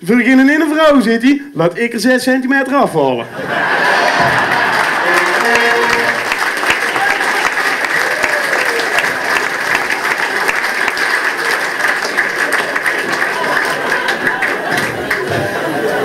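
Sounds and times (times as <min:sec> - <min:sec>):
audience applauding: 0:03.4 - 0:16.0.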